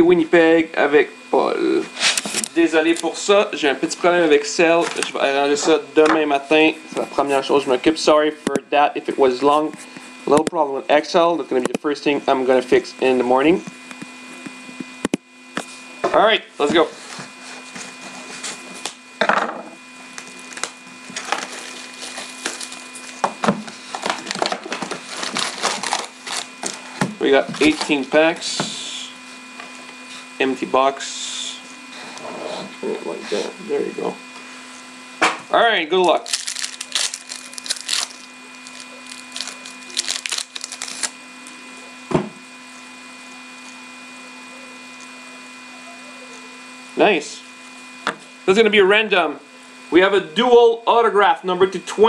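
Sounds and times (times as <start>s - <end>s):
electrical hum: 0.0s - 52.0s
plastic wrap crinkling: 20.1s - 23.2s, 23.8s - 28.0s, 36.2s - 41.5s.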